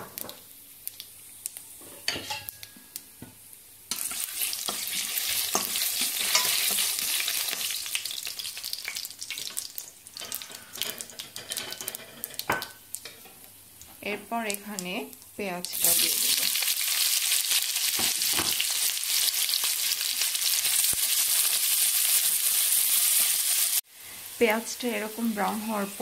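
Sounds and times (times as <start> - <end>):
crackling and popping: 0.0 - 21.7
spices sizzling in hot oil: 0.0 - 26.0.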